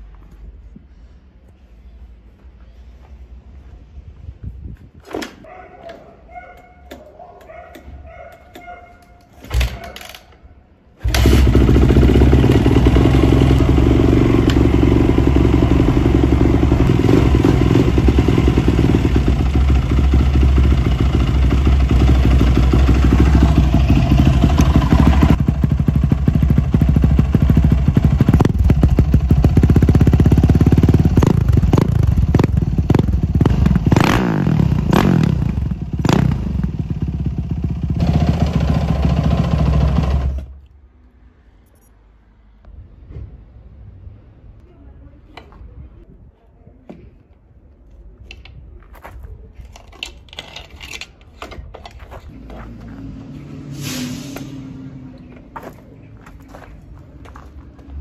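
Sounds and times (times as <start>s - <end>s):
motorcycle engine running: 11.0s - 40.5s.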